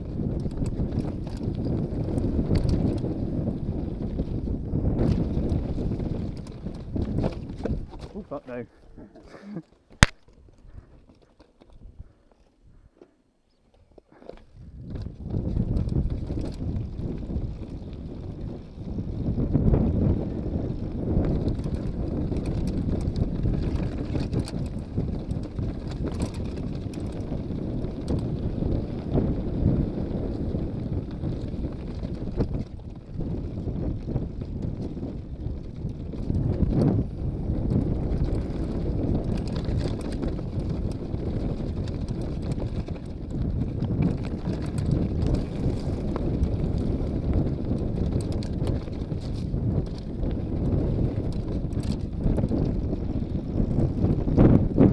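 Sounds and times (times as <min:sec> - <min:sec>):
wind buffeting microphone: 0:00.0 - 0:54.9
tyres rolling on loose stone: 0:04.9 - 0:08.4, 0:09.1 - 0:12.6, 0:34.2 - 0:54.9
clicks and rattles of stones: 0:06.1 - 0:08.4, 0:09.1 - 0:16.9, 0:21.2 - 0:27.3, 0:38.2 - 0:47.0, 0:47.8 - 0:50.5.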